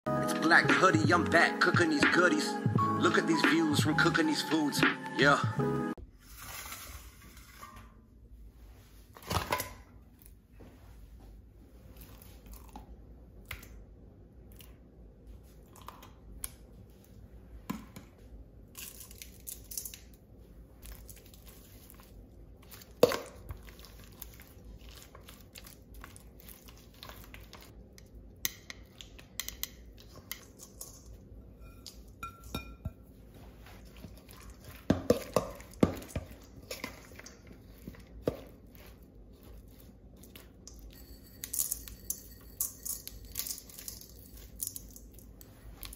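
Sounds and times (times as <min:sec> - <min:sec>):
metal tongs clinking in steel bowl: 0:29.4 - 0:32.9, 0:40.7 - 0:45.3.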